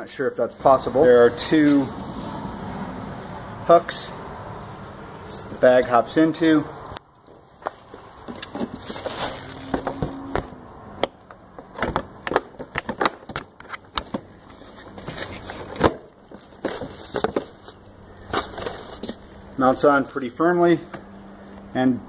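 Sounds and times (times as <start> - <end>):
plastic parts clicking and knocking: 11.0 - 14.3.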